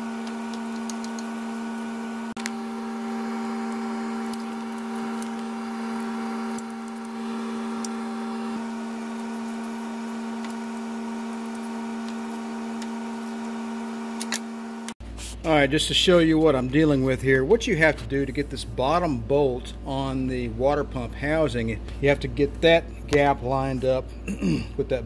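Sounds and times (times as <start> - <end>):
machine hum: 0.0 - 17.2.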